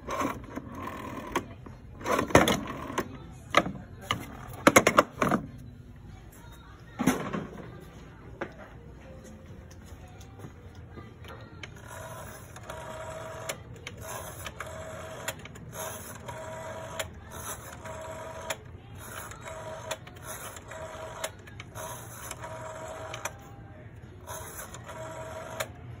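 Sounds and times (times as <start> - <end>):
rotary dial whirring: 0.0 - 5.5, 10.9 - 26.0.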